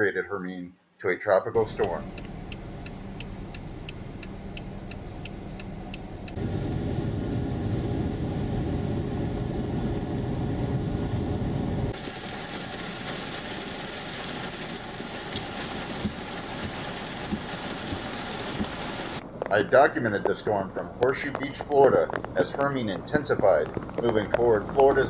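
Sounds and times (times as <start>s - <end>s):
car driving rumble: 1.5s - 25.0s
fast even ticking: 1.6s - 6.4s
rain hissing: 1.6s - 19.2s
road hum inside car: 1.6s - 25.0s.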